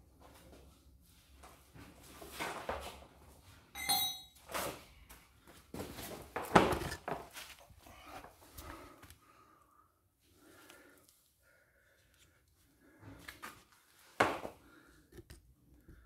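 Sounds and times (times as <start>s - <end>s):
metallic clink: 3.8s - 4.4s
objects clattering on concrete floor: 5.8s - 7.6s.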